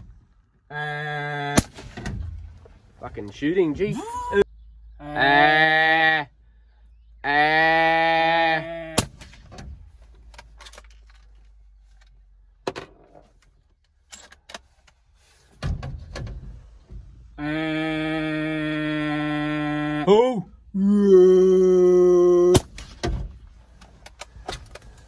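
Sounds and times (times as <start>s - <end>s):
rifle shot: 1.6s - 2.2s, 9.0s - 9.6s, 22.6s - 23.2s.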